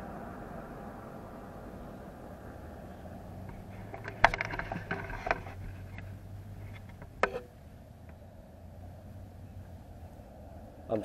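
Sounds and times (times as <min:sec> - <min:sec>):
vehicle engine idling: 0:00.0 - 0:11.0
sharp clicks and knocks: 0:03.4 - 0:08.2.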